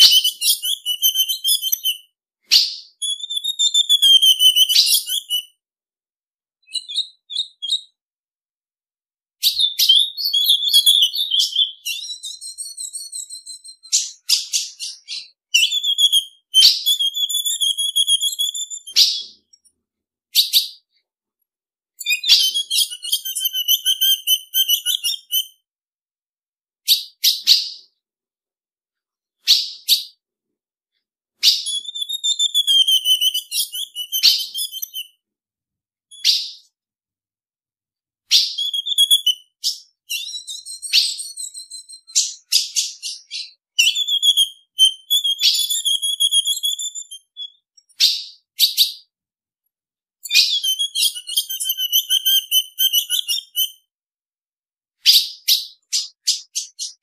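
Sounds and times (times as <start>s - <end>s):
bird chipping and twittering: 0.0s - 5.6s, 6.6s - 8.0s, 9.4s - 19.6s, 20.3s - 20.8s, 22.0s - 25.6s, 26.9s - 28.0s, 29.4s - 30.2s, 31.4s - 35.2s, 36.1s - 36.7s, 38.3s - 49.1s, 50.2s - 53.8s, 55.0s - 57.0s.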